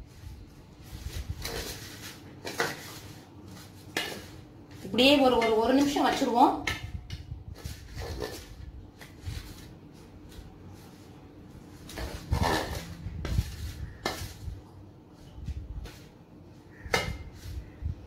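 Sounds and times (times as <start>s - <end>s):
metal spoon scraping a bowl: 1.4s - 4.4s, 5.0s - 8.6s, 11.8s - 14.4s.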